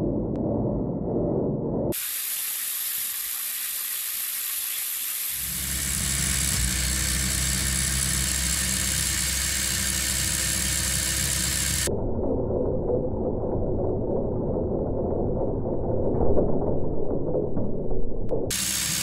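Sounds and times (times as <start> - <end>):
electric motor whirring: 1.9 - 11.9, 18.5 - 19.0
steady low hum: 5.4 - 16.1, 18.3 - 19.0.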